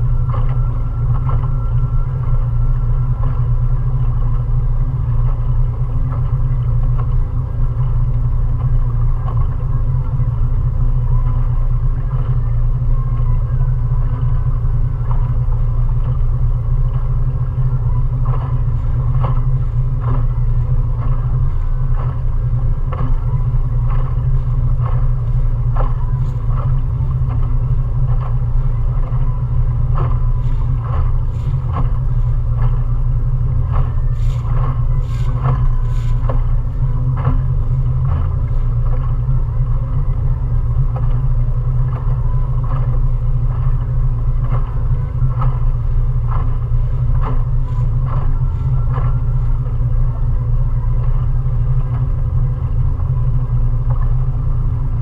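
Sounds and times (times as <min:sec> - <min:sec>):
outboard motor droning: 0:00.0 - 0:55.0
faint light ticks: 0:14.1 - 0:54.6.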